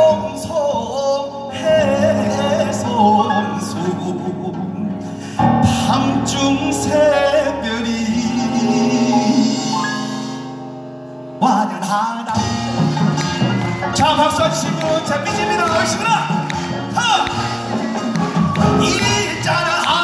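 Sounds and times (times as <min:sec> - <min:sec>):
man singing into a microphone: 0:00.0 - 0:10.1, 0:11.4 - 0:12.9, 0:13.8 - 0:16.4, 0:18.6 - 0:20.0.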